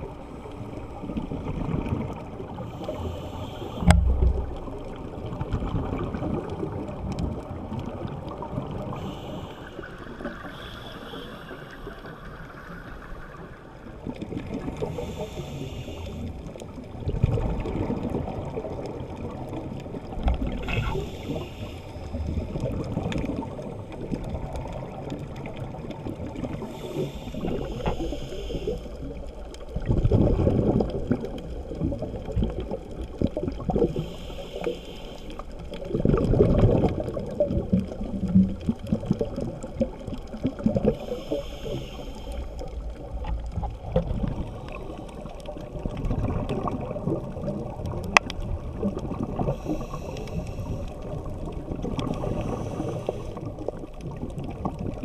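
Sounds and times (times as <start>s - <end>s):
gurgling rush of bubbles: 0.0s - 55.0s
diver breathing through regulator: 2.6s - 4.6s, 8.9s - 12.7s, 14.8s - 16.5s, 20.6s - 22.6s, 26.5s - 29.1s, 33.8s - 35.7s, 40.8s - 42.8s, 49.2s - 51.2s, 52.0s - 53.5s.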